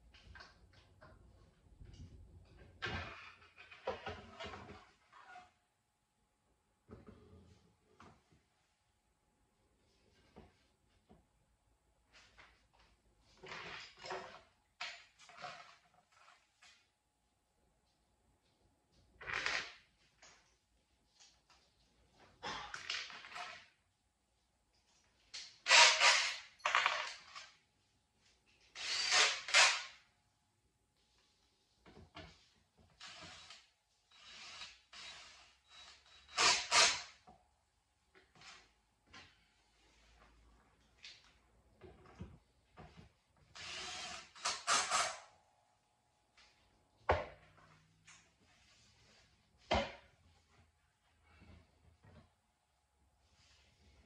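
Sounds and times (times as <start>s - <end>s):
drill driving screws: 25.7s - 27.4s, 28.8s - 29.9s, 33.0s - 37.2s, 43.6s - 45.2s.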